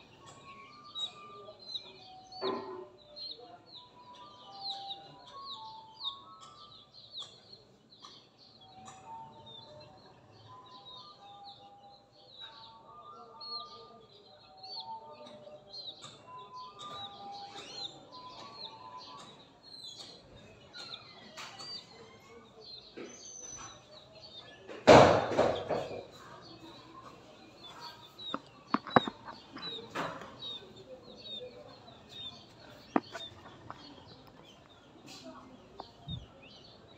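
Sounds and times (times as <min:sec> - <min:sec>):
chick peeping: 0:00.1 - 0:02.4, 0:14.7 - 0:36.9.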